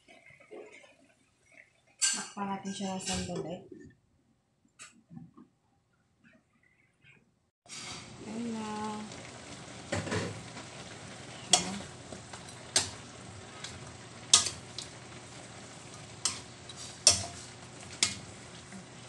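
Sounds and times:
meat sizzling in a wok: 0:07.7 - 0:19.0
metal spatula scraping a pan: 0:10.1 - 0:19.0.

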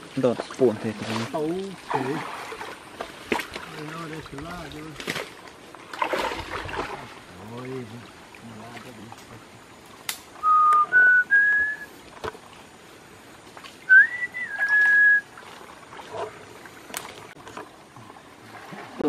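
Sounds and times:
person whistling: 0:10.4 - 0:11.9, 0:13.9 - 0:15.3.

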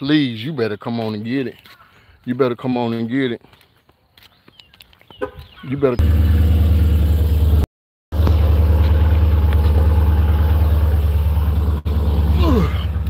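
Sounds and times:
car engine idling: 0:06.0 - 0:13.0.

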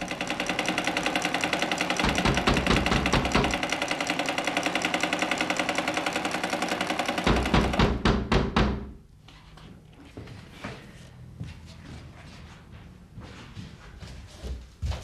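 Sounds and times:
sewing machine stitching: 0:00.0 - 0:08.0.

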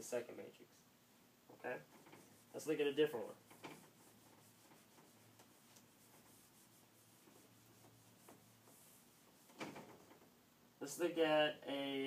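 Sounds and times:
eraser rubbing on whiteboard: 0:01.9 - 0:10.0
marker strokes on whiteboard: 0:01.9 - 0:10.0.

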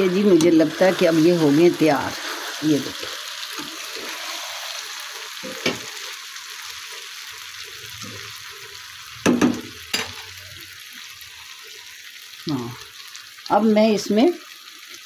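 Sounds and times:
vegetables sizzling in a wok: 0:00.0 - 0:15.0.

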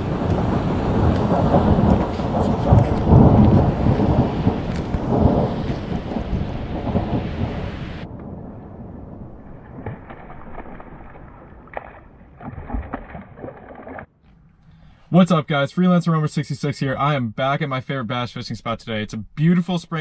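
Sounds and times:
rain hissing: 0:00.0 - 0:11.7
thunder rumbling: 0:00.0 - 0:14.0.

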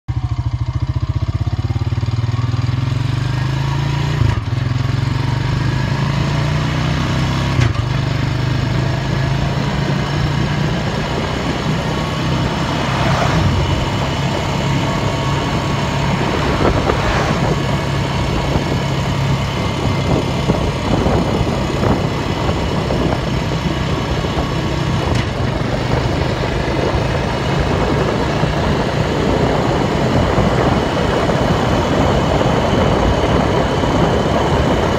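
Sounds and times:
tractor engine running: 0:07.3 - 0:34.9.

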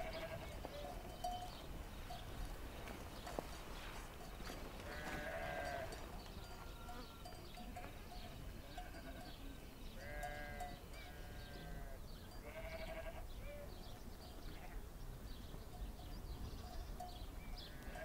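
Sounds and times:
sheep bleating: 0:00.0 - 0:00.6, 0:04.9 - 0:08.0, 0:10.0 - 0:13.2.

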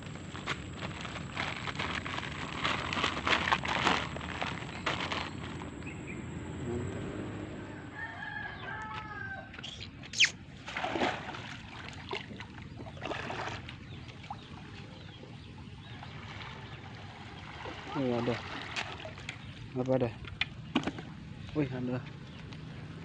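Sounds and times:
outdoor background noise: 0:00.0 - 0:23.0
rooster crowing: 0:07.5 - 0:09.6.

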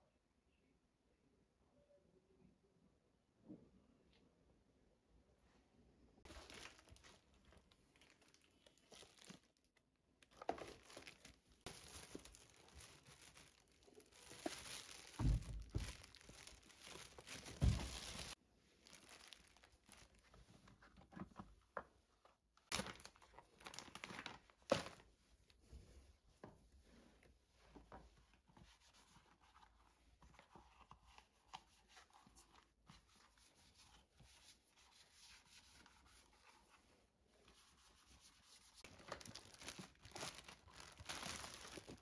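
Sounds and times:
plastic bag crinkling: 0:06.3 - 0:20.4, 0:22.7 - 0:25.1, 0:38.8 - 0:42.0.

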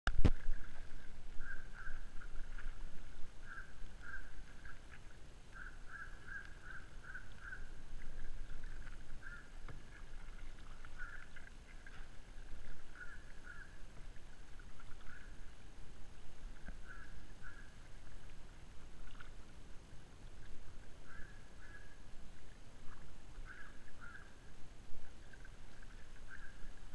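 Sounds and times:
wind rumble on microphone: 0:00.1 - 0:04.9
bird calling: 0:01.4 - 0:02.2, 0:03.4 - 0:04.4, 0:05.5 - 0:07.8, 0:09.2 - 0:09.7, 0:10.8 - 0:11.4, 0:12.9 - 0:13.8, 0:15.0 - 0:15.4, 0:16.8 - 0:17.8, 0:21.0 - 0:22.0, 0:23.4 - 0:24.4, 0:26.2 - 0:26.7.

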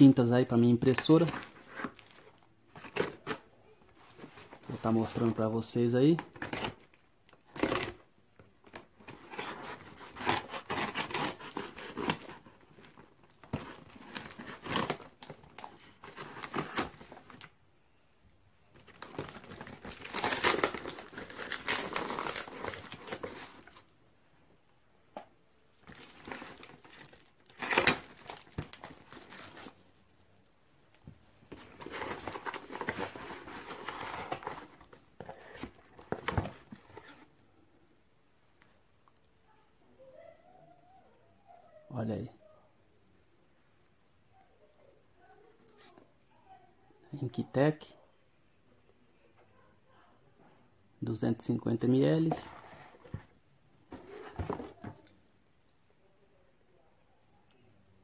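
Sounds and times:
cardboard box ripped open: 0:09.3 - 0:12.4, 0:19.0 - 0:23.4
packaging crinkling: 0:18.8 - 0:23.8, 0:25.8 - 0:29.8
plastic mailer torn open: 0:19.0 - 0:23.3, 0:25.9 - 0:29.6.

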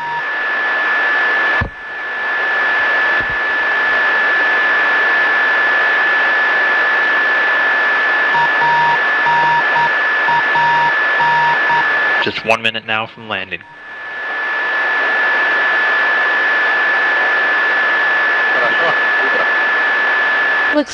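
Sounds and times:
radio static hiss: 0:00.0 - 0:20.9
radio click: 0:03.1 - 0:03.5
short and long beeps: 0:08.4 - 0:11.9.

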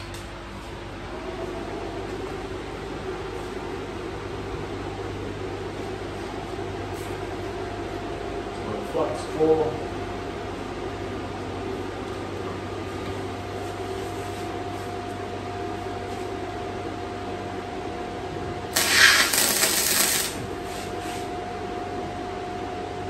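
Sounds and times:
steady low hum: 0:00.0 - 0:23.0
welder sizzling and crackling: 0:18.7 - 0:20.5.

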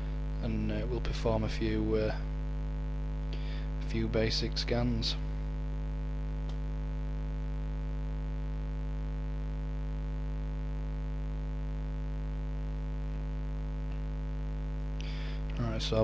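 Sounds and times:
electrical mains hum: 0:00.0 - 0:16.0
faint click: 0:06.4 - 0:06.6.

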